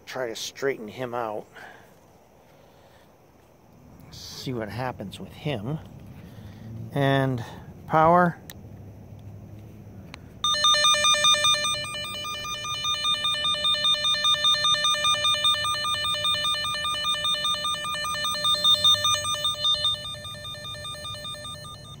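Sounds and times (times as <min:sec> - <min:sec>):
two-pitch electronic warble beeping: 0:10.4 - 0:22.0.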